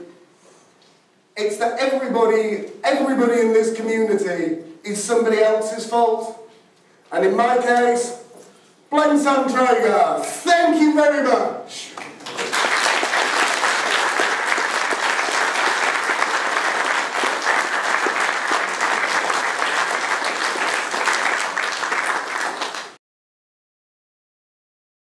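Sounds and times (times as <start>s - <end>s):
audience applauding: 12.0s - 23.0s.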